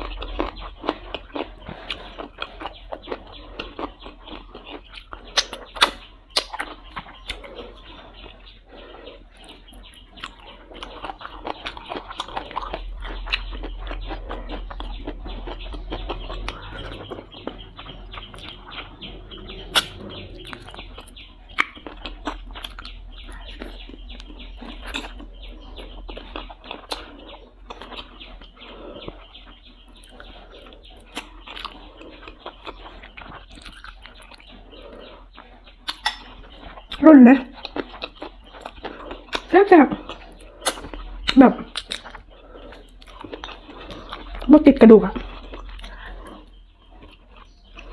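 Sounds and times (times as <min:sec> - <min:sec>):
wet chewing and lip-smacking: 0:00.0 - 0:47.9.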